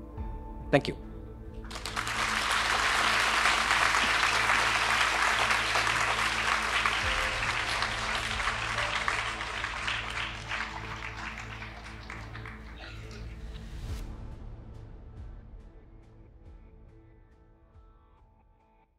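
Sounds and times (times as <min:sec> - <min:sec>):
soft background music: 0:00.0 - 0:18.4
audience applauding: 0:01.7 - 0:13.7.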